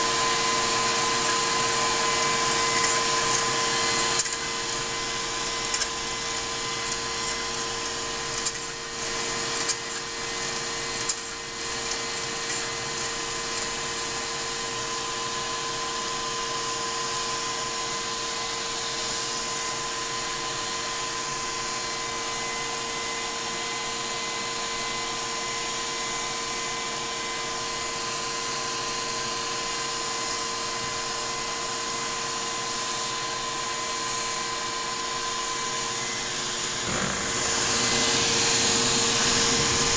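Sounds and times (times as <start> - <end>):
toy steam engine whirring: 0.0 - 15.6.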